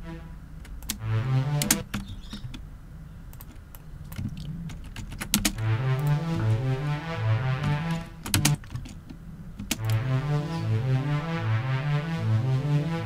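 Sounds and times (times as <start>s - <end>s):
short synth notes: 0.0s - 1.9s, 5.5s - 8.5s, 9.8s - 13.0s
mouse and keyboard clicking: 1.6s - 2.6s, 3.3s - 5.6s, 8.2s - 10.0s.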